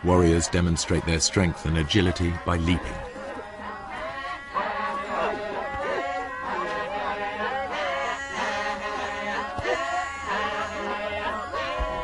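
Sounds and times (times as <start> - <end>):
group of people chanting: 0.0 - 12.0.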